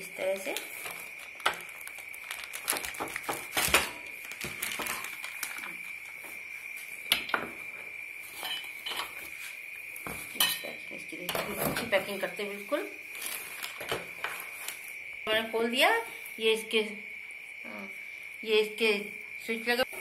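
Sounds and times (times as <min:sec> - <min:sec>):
plastic wrap rustling: 0:00.2 - 0:06.4, 0:11.6 - 0:15.0.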